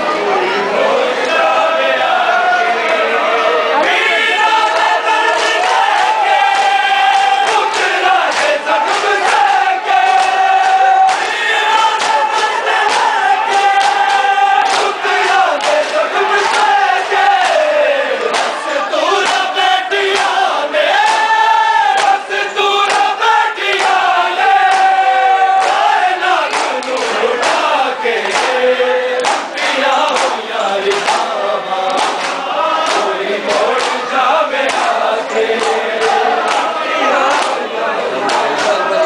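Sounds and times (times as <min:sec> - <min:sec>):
crowd of men chanting: 0:00.0 - 0:39.0
hands slapping on chests: 0:07.4 - 0:25.0, 0:25.6 - 0:28.6, 0:29.2 - 0:34.0, 0:34.6 - 0:36.7, 0:37.3 - 0:37.6.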